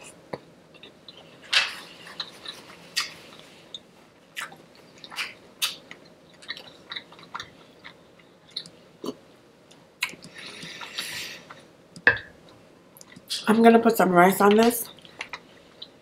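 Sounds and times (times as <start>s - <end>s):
person chewing food: 0.0s - 11.7s.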